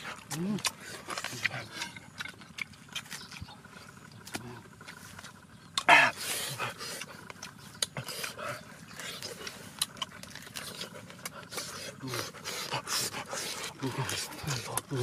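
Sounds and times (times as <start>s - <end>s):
roasted meat cracking and crackling: 6.8s - 15.0s
leaves crinkling: 9.0s - 11.8s.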